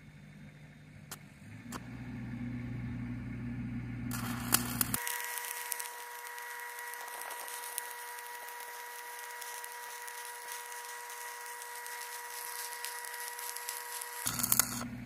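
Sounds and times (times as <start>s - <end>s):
welding arc crackling hiss: 4.1s - 14.9s.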